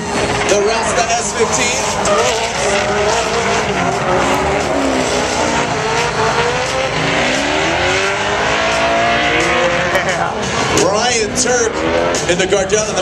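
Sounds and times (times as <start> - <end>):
car engines revving: 0.0 - 13.0
tyres squealing: 0.5 - 7.6.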